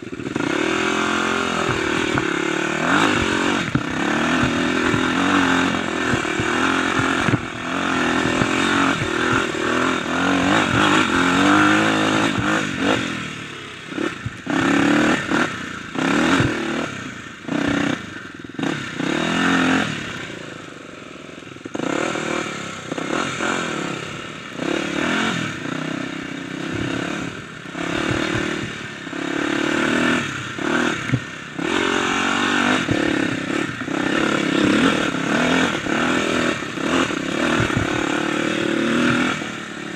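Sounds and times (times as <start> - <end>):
dirt bike engine revving: 0.0 - 39.9
bike clattering over bumps: 0.2 - 13.2, 26.6 - 39.6.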